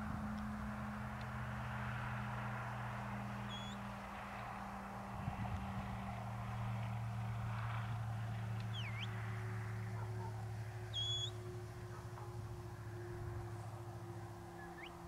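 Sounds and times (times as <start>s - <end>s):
steady low hum: 0.0s - 15.0s
short high whistles: 10.9s - 11.4s.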